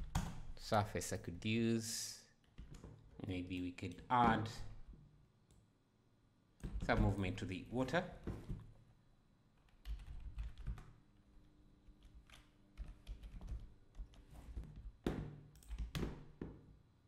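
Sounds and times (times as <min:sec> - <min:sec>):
computer keyboard typing: 0:09.6 - 0:11.0, 0:12.0 - 0:14.2, 0:15.6 - 0:16.0.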